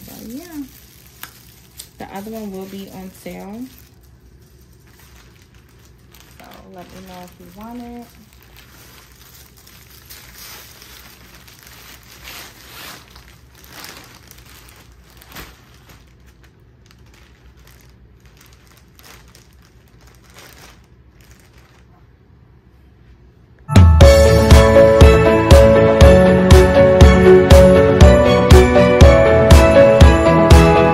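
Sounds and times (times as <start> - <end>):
plastic sleeve crinkling: 0.0 - 22.4.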